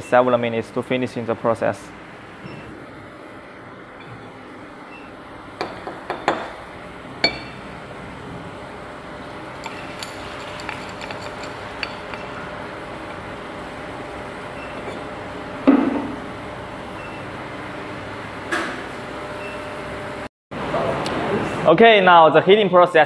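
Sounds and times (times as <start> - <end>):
steady background hum: 0.0 - 23.0
metal rod clinking on crucible: 9.6 - 12.4.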